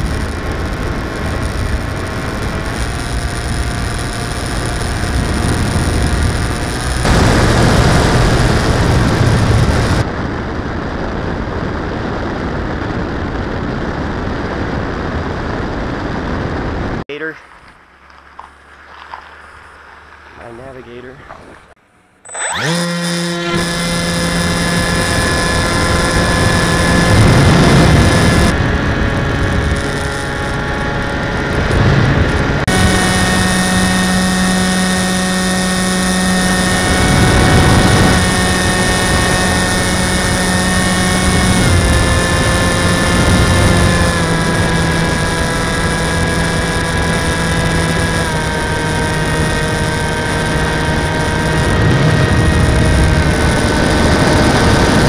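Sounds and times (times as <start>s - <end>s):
model plane motor whine: 0.0s - 10.0s, 22.0s - 55.0s.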